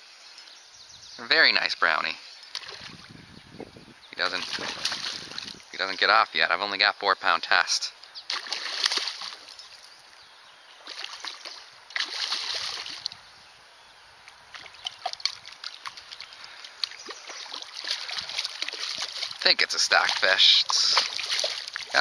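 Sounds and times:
fish splashing in water: 0:02.5 - 0:03.1, 0:04.2 - 0:05.7, 0:08.3 - 0:09.8, 0:10.8 - 0:13.2, 0:14.3 - 0:22.0.

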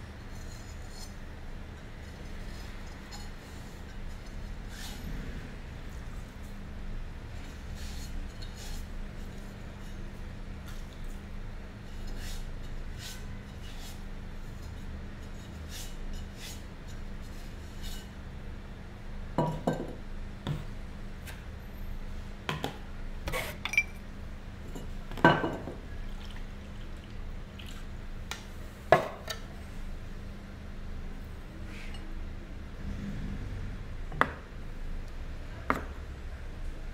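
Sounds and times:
ceramic knocking on stone countertop: 0:19.4 - 0:20.0, 0:25.2 - 0:25.8
water dripping and sloshing in bowl: 0:26.0 - 0:27.9.

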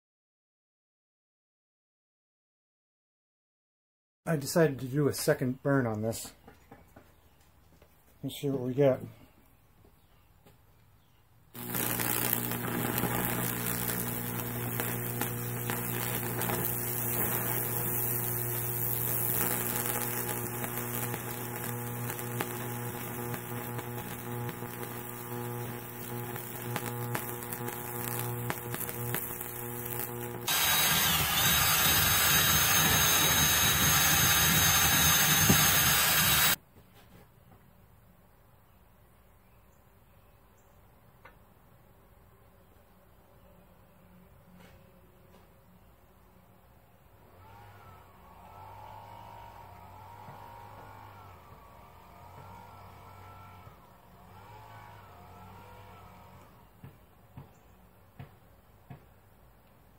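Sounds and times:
electrical crackling: 0:11.6 - 0:36.6
electrical hum: 0:11.6 - 0:36.6
harsh electrical buzz: 0:11.6 - 0:36.6, 0:47.4 - 0:56.5.

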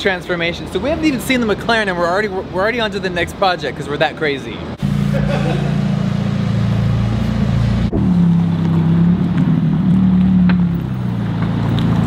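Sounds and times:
car engine droning: 0:04.7 - 0:12.0.

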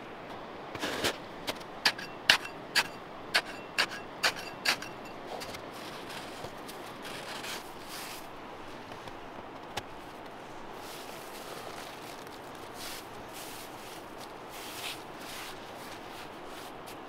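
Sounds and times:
hatchet chopping into snow: 0:01.9 - 0:06.3.

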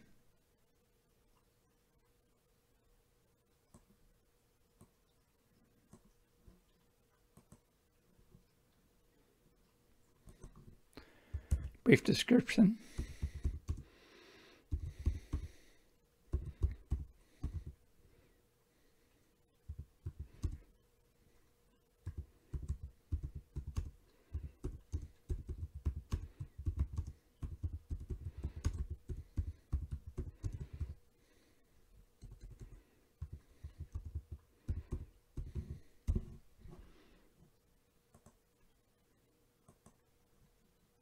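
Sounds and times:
typing on computer keyboard: 0:13.0 - 0:13.9, 0:14.7 - 0:15.5, 0:16.3 - 0:17.8, 0:19.7 - 0:20.6, 0:22.0 - 0:31.0, 0:32.2 - 0:36.4.

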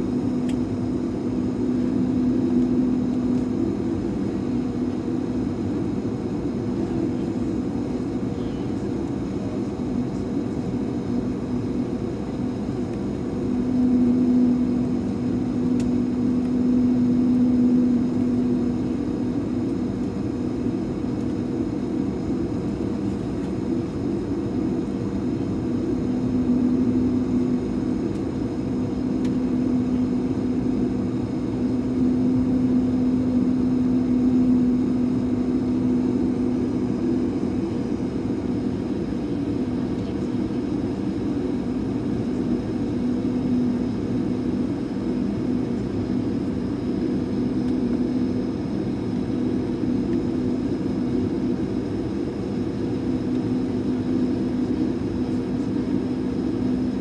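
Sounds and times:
airplane engines idling in cabin: 0:00.0 - 0:57.0.

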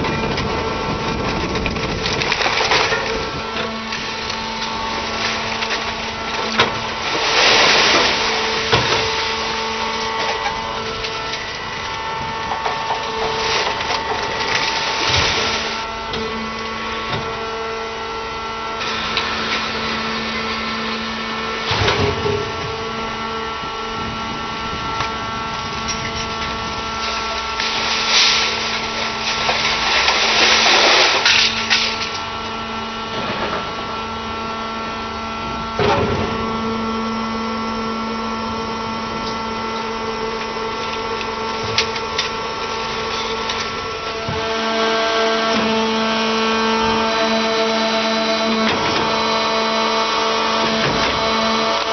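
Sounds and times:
sheet-metal scrap clattering and crunching: 0:00.0 - 0:15.9, 0:25.6 - 0:32.4, 0:33.0 - 0:33.9.

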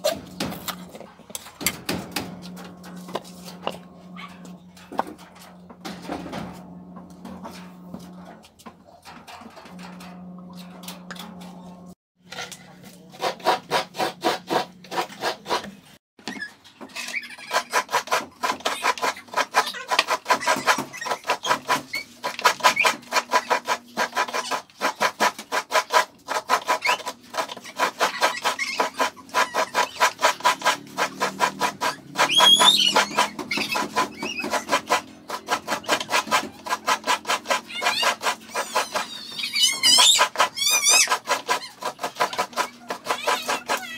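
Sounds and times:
coconut rasping on a grater: 0:13.0 - 0:15.8, 0:17.0 - 0:43.9.

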